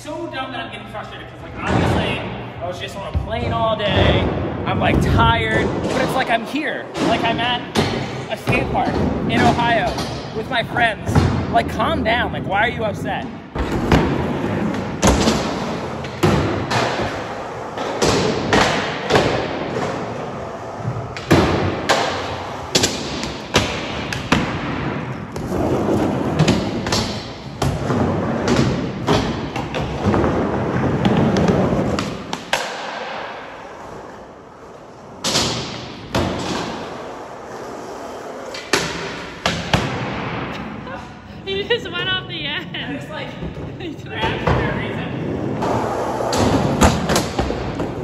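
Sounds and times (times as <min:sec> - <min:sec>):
skateboard wheels rolling: 0:13.6 - 0:39.5.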